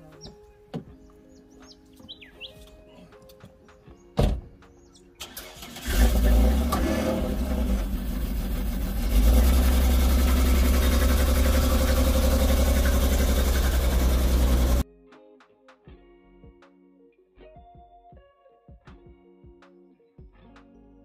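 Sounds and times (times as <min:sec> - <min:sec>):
car door shutting: 0:04.2 - 0:04.5
vehicle engine running: 0:05.9 - 0:14.8.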